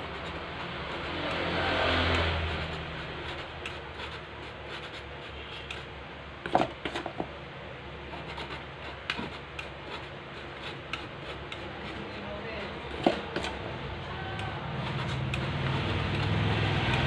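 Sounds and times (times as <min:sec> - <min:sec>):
flour sieve rubbing and scraping: 0:14.6 - 0:17.0.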